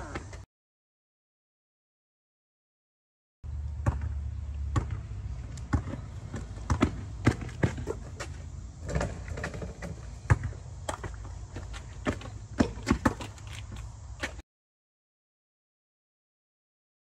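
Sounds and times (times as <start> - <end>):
basketball bouncing: 3.8 - 14.4.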